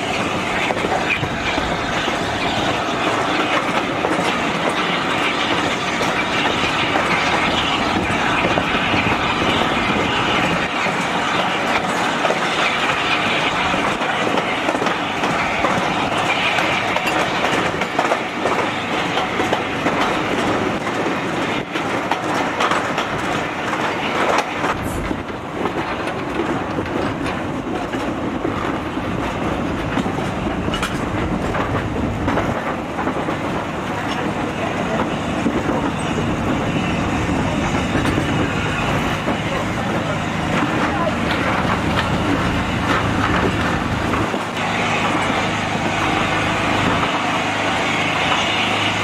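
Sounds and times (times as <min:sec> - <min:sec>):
train coach rumble: 0:00.0 - 0:49.0
wheels clattering over rail joints: 0:00.0 - 0:49.0.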